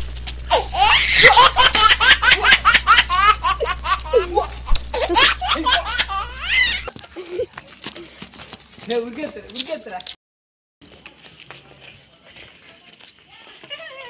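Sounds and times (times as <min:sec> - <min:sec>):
high-pitched laughter: 0:00.5 - 0:07.6.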